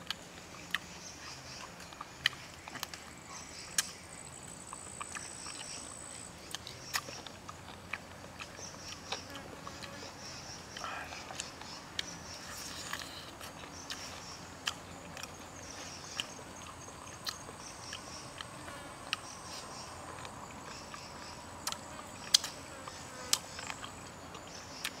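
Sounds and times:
insects chirring: 0.0 - 25.0
person eating chicken clicks: 1.5 - 4.0, 10.7 - 12.2, 12.8 - 15.4, 16.1 - 25.0.

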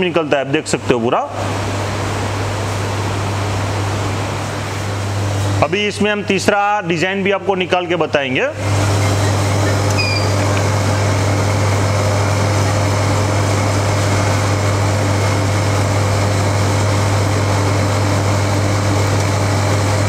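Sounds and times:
ice cream machine motor hum: 0.0 - 20.0.

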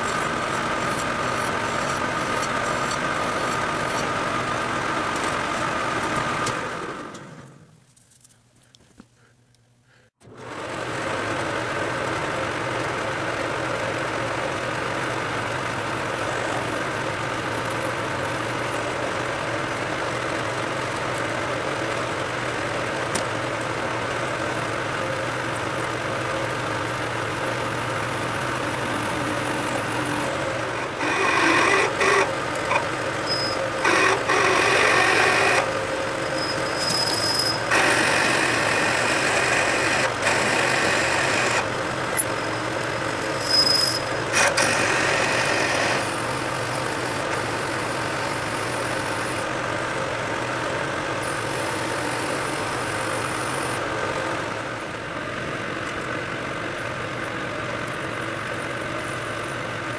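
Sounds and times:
metal lathe running: 0.0 - 7.2, 10.3 - 59.9
drill squealing in metal: 28.7 - 42.5, 43.2 - 49.4.

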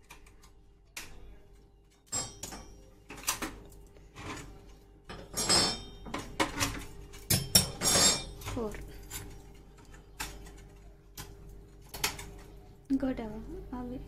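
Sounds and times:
metal stove parts clanking: 5.1 - 9.4.

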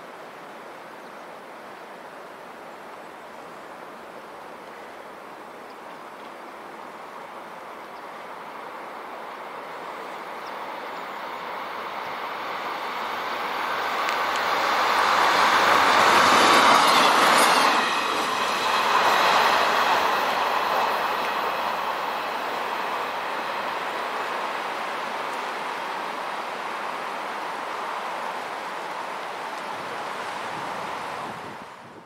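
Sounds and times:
railbus engine passing: 6.3 - 32.0
wheels on rails: 8.4 - 32.0.

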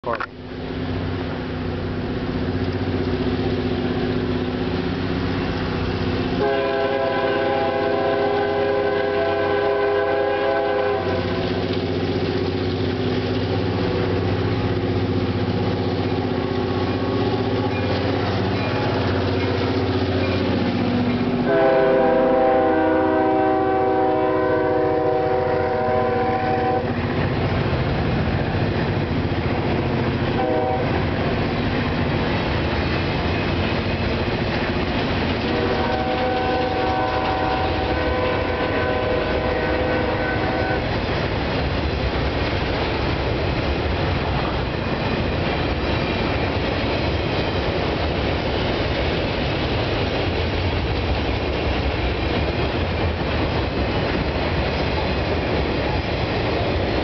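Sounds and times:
diesel locomotive engines running: 0.0 - 57.0
freight cars rolling: 0.0 - 57.0
locomotive air horn blasts: 6.4 - 11.6, 21.4 - 27.0, 30.3 - 31.1, 35.4 - 40.9.

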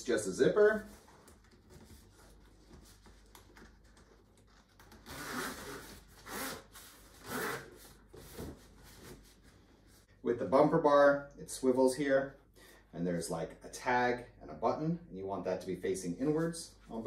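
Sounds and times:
zipper pulled: 4.9 - 7.8.

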